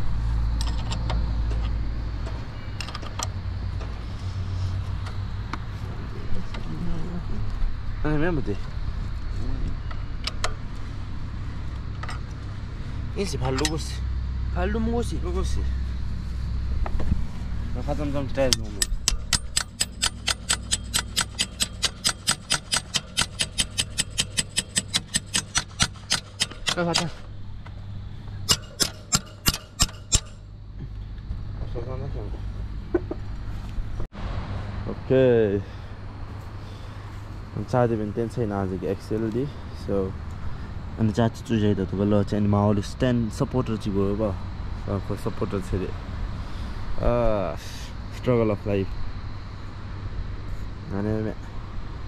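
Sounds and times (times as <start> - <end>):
steady low rumble: 0.0 - 52.0
metallic clicks and taps of tools: 0.6 - 3.9, 13.4 - 13.8, 18.5 - 27.2, 28.5 - 30.4.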